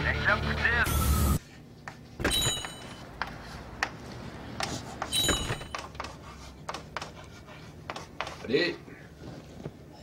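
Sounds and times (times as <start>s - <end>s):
chalk tapping and scraping: 3.2s - 8.7s.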